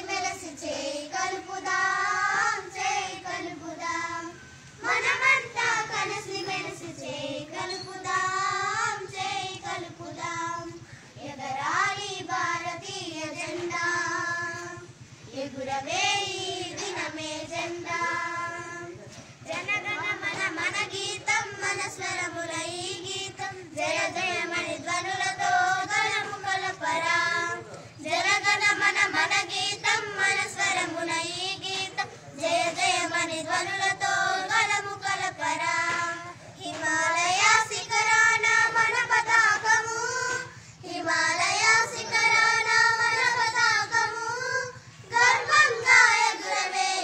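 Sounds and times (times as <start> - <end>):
children singing together: 0.0 - 18.9, 19.5 - 47.0.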